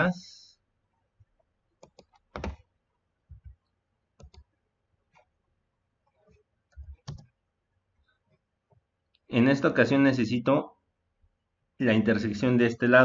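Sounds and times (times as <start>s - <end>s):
mouse and keyboard clicks: 1.8s - 2.6s, 4.2s - 4.5s, 6.7s - 7.3s.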